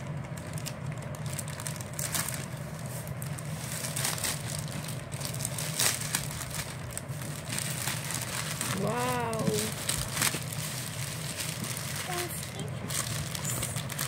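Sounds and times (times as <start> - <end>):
low hum: 0.0 - 14.0
plastic crinkling and rustling: 0.0 - 14.0
scissors cutting plastic: 7.4 - 14.0.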